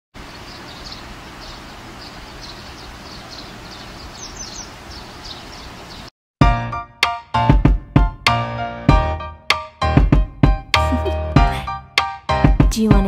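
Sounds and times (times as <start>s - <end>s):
budgerigars chirping: 0.2s - 6.1s.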